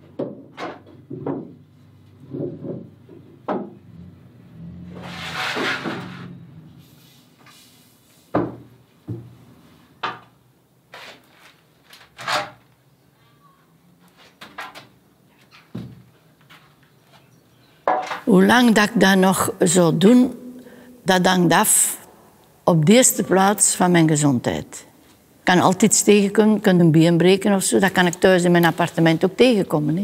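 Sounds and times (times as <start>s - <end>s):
wooden shutter knocking: 0.0s - 1.6s, 2.2s - 3.8s.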